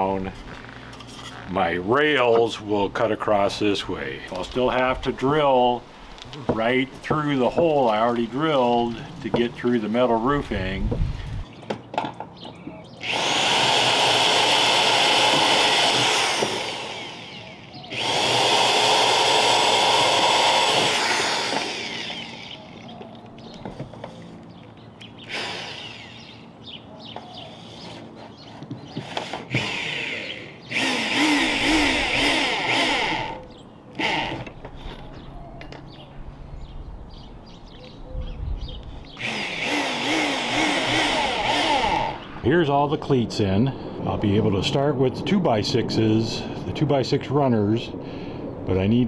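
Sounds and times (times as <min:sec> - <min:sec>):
power drill running: 0:13.0 - 0:22.9, 0:25.2 - 0:26.4, 0:29.0 - 0:33.4, 0:34.0 - 0:34.6, 0:39.2 - 0:42.3.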